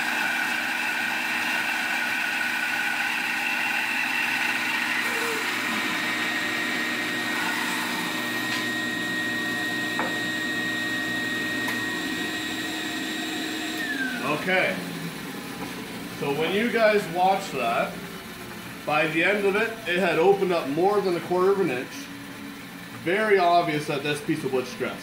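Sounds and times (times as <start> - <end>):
bandsaw cutting board: 0.0 - 14.9
bandsaw humming: 0.0 - 22.5.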